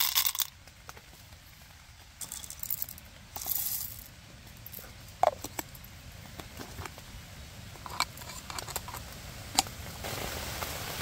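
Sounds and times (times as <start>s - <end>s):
coffee beans rattling in metal cup: 0.0s - 0.5s, 2.2s - 5.8s, 7.8s - 9.1s.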